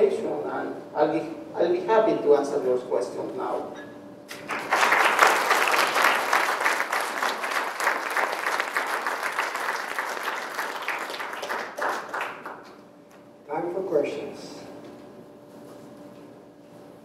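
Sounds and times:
audience clapping: 0:04.3 - 0:12.8.

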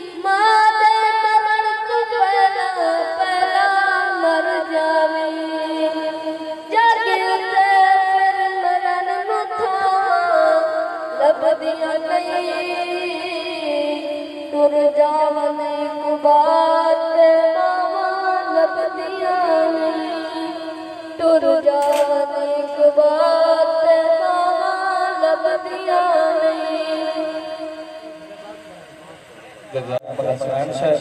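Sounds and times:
sharp click: 0:21.7 - 0:22.3.

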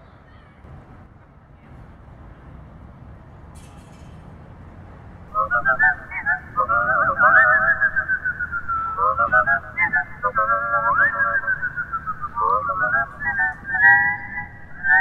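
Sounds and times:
faint background hiss: 0:05.2 - 0:15.0
wavering sliding melody: 0:05.4 - 0:15.0.

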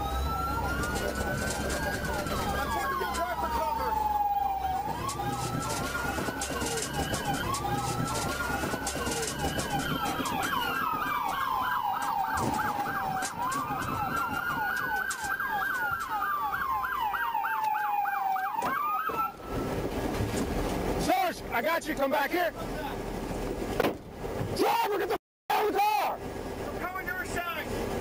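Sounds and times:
police siren wailing and yelping: 0:00.0 - 0:20.1.

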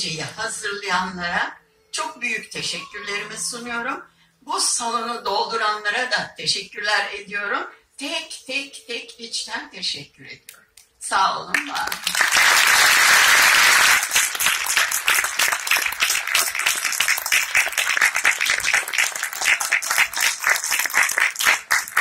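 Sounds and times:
audience applauding: 0:11.6 - 0:22.0.

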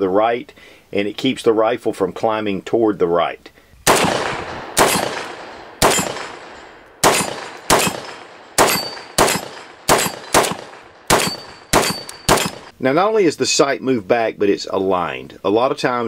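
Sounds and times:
rifle gunshots with echo: 0:03.8 - 0:12.7.

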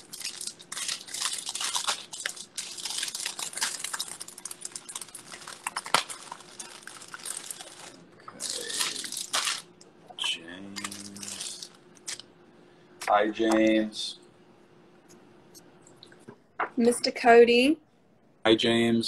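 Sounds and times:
paper rustling and crinkling: 0:00.0 - 0:09.7, 0:10.7 - 0:12.2.

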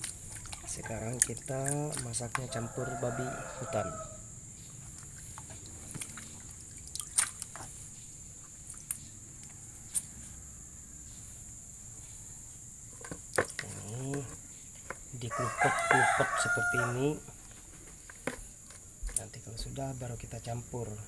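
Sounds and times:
water splashing in basin: 0:00.0 - 0:03.0, 0:05.0 - 0:07.8.

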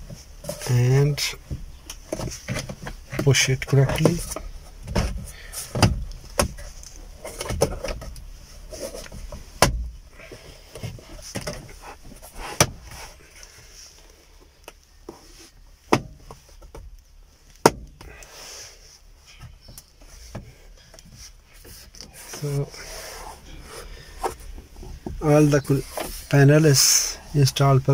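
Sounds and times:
handling rustle: 0:18.2 - 0:27.9.

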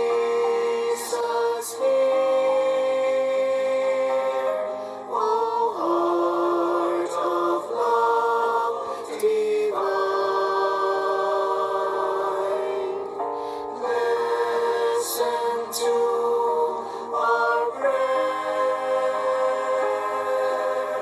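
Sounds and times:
choir singing a hymn: 0:00.0 - 0:21.0.

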